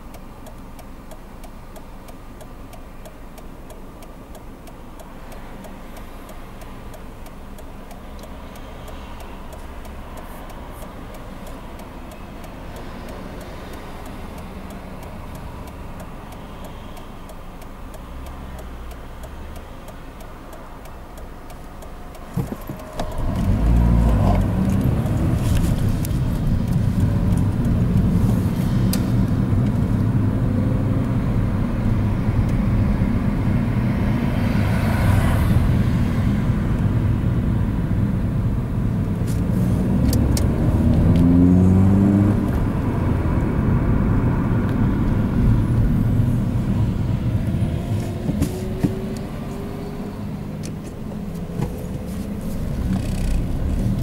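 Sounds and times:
car engine: 0:00.0 - 0:54.0
tyre and road rumble: 0:22.0 - 0:54.0.

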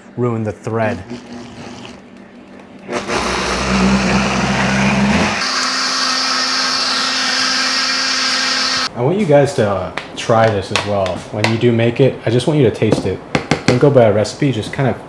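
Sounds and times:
blender motor blending: 0:02.9 - 0:08.9.

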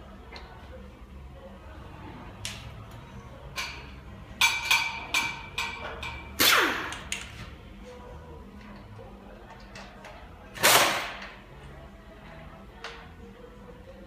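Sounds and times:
metal tools clanking on concrete: 0:03.6 - 0:06.4.

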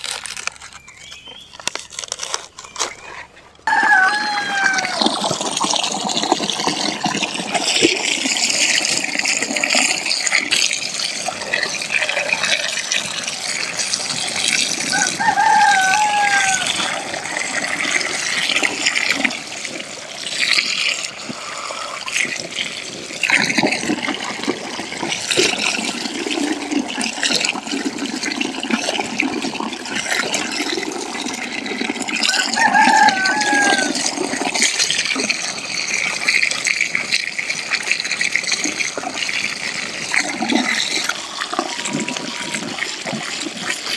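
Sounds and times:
chicken calling: 0:02.8 - 0:05.4, 0:14.9 - 0:17.4, 0:32.3 - 0:34.0, 0:41.1 - 0:43.0
water pouring into a basin: 0:03.7 - 0:43.9.

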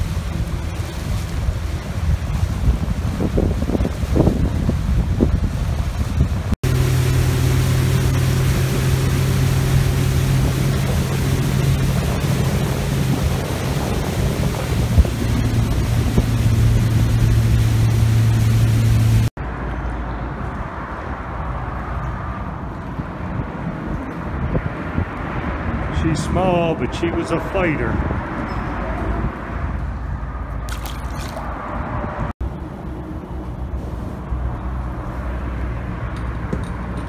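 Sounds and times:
wind buffeting microphone: 0:00.0 - 0:19.1
boat motor running: 0:00.0 - 0:19.3.

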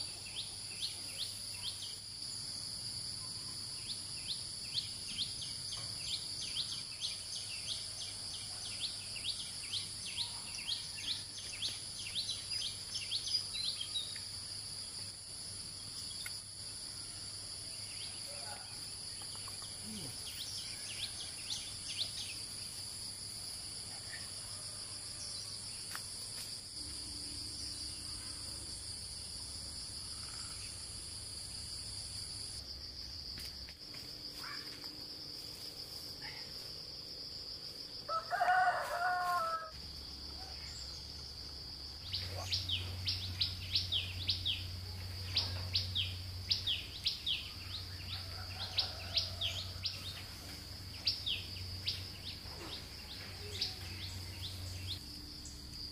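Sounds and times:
high insect drone: 0:00.0 - 0:55.9
rooster crowing: 0:38.1 - 0:39.8, 0:48.0 - 0:50.2.

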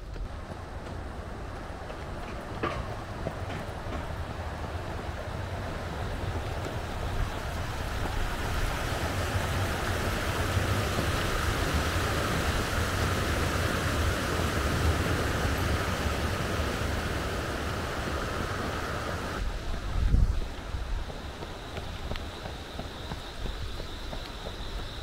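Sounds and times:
wind rumbling on microphone: 0:00.0 - 0:25.0
river water rushing over weirs: 0:00.1 - 0:19.8.

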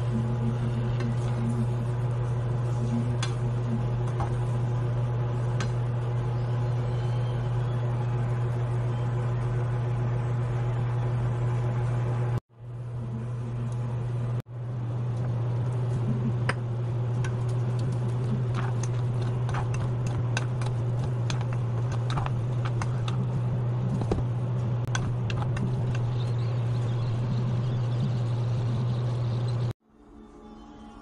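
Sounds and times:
low hum: 0:00.0 - 0:31.0
glaze crackling and popping: 0:15.0 - 0:29.7
wooden spatula stirring: 0:17.4 - 0:24.2.

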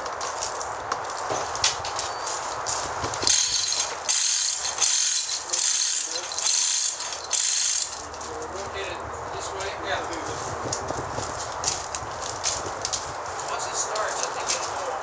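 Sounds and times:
chain hoist ratcheting clicks: 0:03.2 - 0:08.3
chain rattling: 0:03.2 - 0:08.4.

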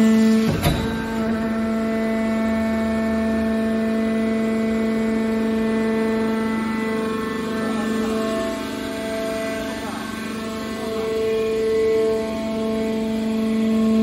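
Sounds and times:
hydraulic motor and pump humming: 0:00.0 - 0:14.0
sharp metal clank: 0:00.5 - 0:01.4.

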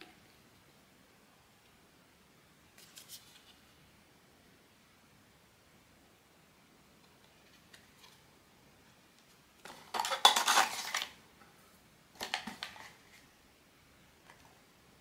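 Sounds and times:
packaging crinkling: 0:09.7 - 0:11.2.

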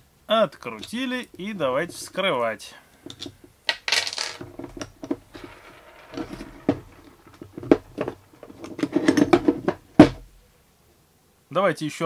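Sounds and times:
clicks and taps of tool disassembly: 0:03.1 - 0:03.8.

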